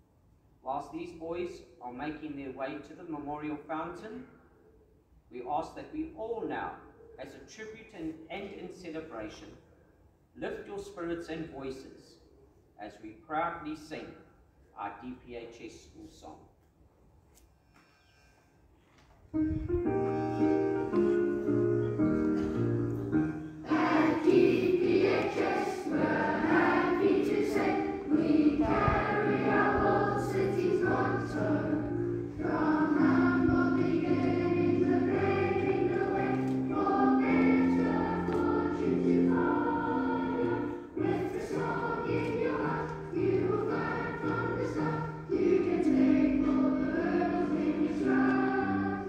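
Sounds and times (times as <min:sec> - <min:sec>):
instrumental accompaniment: 0:19.4 - 0:49.0
choir singing: 0:23.2 - 0:49.0.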